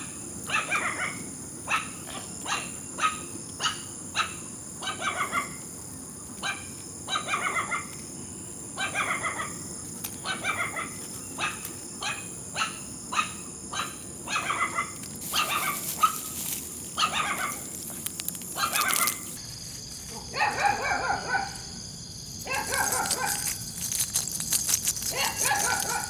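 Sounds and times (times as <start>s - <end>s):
dog barking and yipping: 0.5s - 5.6s, 6.4s - 8.0s, 8.8s - 9.6s, 10.2s - 16.4s, 17.0s - 17.7s, 18.6s - 19.3s, 20.3s - 21.7s, 22.4s - 23.6s, 25.0s - 26.0s.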